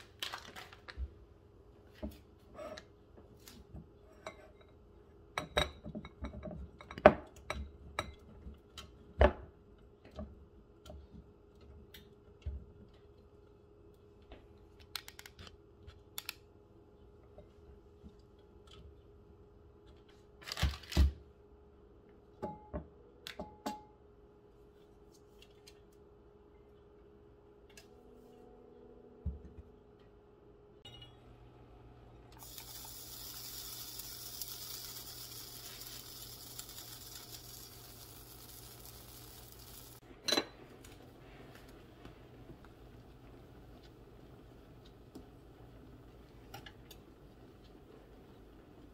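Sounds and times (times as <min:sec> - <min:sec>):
low hum: 0:25.9 - 0:48.9.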